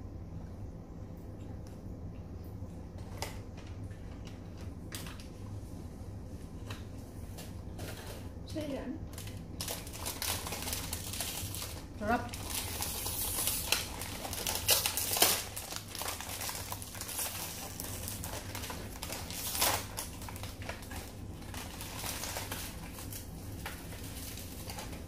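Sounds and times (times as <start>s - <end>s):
crispy seaweed crunching: 9.1s - 25.0s.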